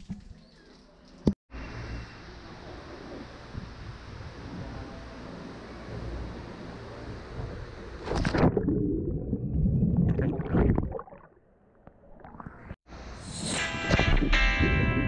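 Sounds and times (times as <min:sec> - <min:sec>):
muffled underwater bubbling: 0:08.4 - 0:12.8.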